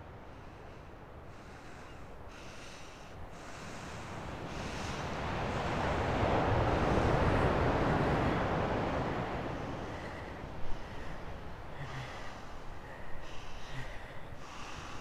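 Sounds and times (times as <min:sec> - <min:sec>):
wind rushing over microphone: 0:03.2 - 0:15.0.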